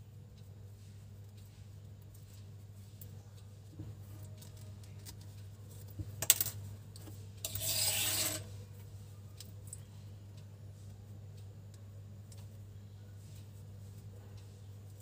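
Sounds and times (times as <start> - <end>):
yarn rubbing scrape: 7.4 - 8.5.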